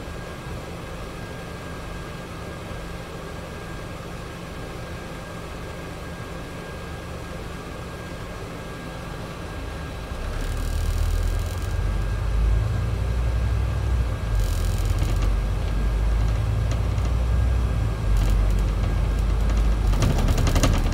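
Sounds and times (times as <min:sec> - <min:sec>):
bus diesel engine: 0:09.3 - 0:20.9.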